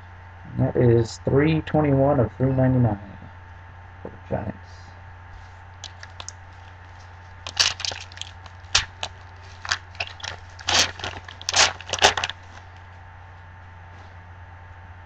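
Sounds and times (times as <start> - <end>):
foil pack tearing and crinkling: 5.8 - 12.9.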